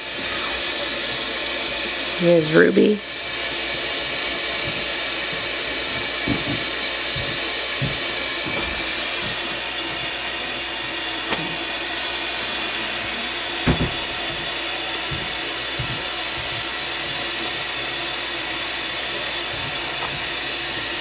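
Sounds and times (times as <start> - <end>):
soft knocks: 4.6 - 10.0, 13.7 - 17.6.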